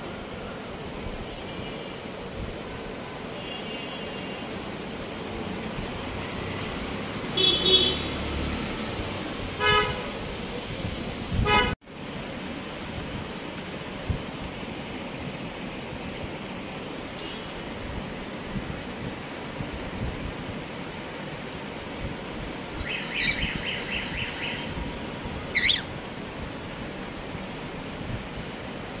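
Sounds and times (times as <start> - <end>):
vehicle horns honking: 7.4 - 8.2, 9.6 - 10.2, 11.4 - 11.8.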